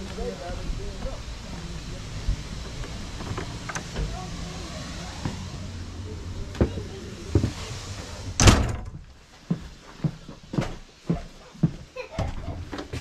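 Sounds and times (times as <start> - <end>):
steady background noise: 0.0 - 13.0
carriage door banging shut: 8.4 - 9.0.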